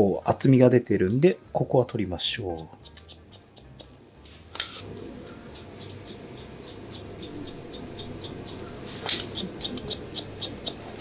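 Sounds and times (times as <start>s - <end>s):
scissors snipping hair: 2.5s - 3.9s, 5.5s - 10.9s.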